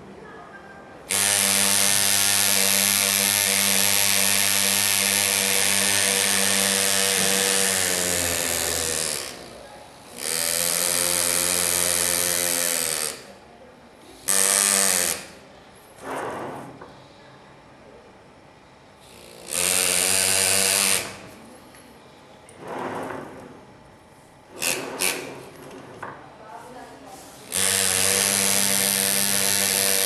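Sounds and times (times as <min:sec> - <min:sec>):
pneumatic engraver buzzing on metal: 0:01.0 - 0:17.0, 0:18.8 - 0:21.5, 0:24.5 - 0:26.1, 0:27.2 - 0:30.0.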